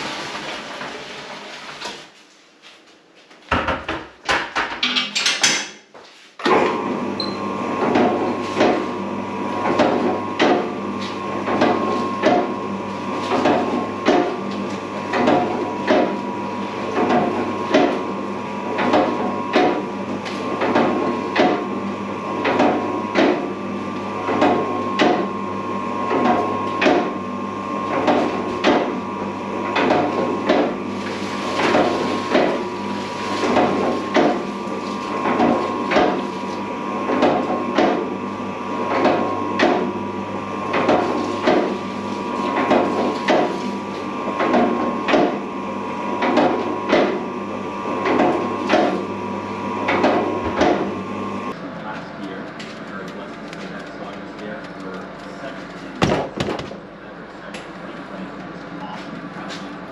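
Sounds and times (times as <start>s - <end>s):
mixer motor hum: 0.0s - 2.3s, 6.4s - 59.9s
dough knocking against mixer bowl: 3.5s - 5.7s, 7.8s - 8.9s, 9.6s - 10.8s, 11.4s - 12.6s, 13.3s - 14.4s, 15.0s - 16.2s, 17.0s - 18.1s, 18.8s - 19.9s, 20.6s - 21.7s, 22.4s - 23.5s, 24.2s - 25.3s, 26.1s - 27.2s, 28.0s - 29.0s, 29.7s - 30.8s, 31.6s - 32.7s, 33.5s - 34.5s, 35.2s - 36.2s, 37.1s - 38.1s, 38.9s - 39.9s, 40.8s - 41.8s, 42.5s - 43.6s, 44.4s - 45.4s, 46.2s - 47.2s, 48.0s - 49.1s.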